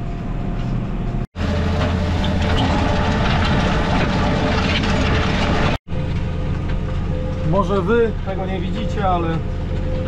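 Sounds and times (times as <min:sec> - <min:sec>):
machinery rattling: 0:01.4 - 0:06.3
tractor engine running: 0:01.4 - 0:07.4.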